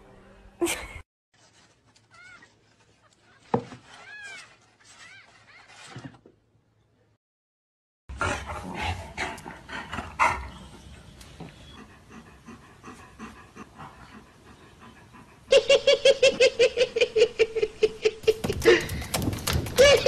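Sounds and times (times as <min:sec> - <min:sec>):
dog panting: 0:08.2 - 0:15.5.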